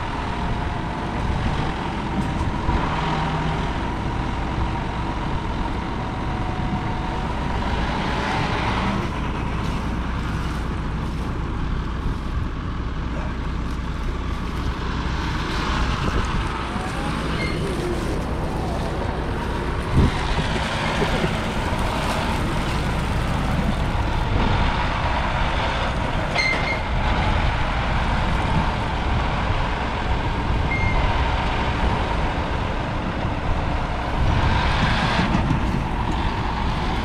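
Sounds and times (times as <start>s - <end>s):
diesel engine running: 0.0s - 37.0s
short high beeps: 30.7s - 31.0s.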